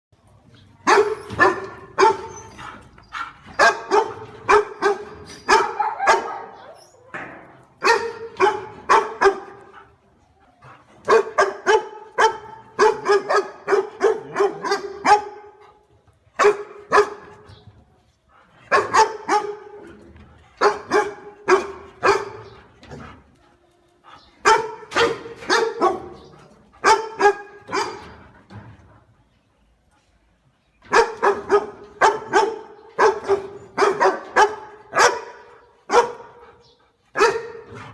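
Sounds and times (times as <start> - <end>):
dog barking: 0.9 - 2.3, 3.6 - 6.6, 7.8 - 9.6, 11.1 - 15.6, 16.4 - 17.3, 18.7 - 19.8, 20.6 - 22.6, 24.4 - 26.2, 26.8 - 28.1, 30.9 - 36.4, 37.2 - 37.7.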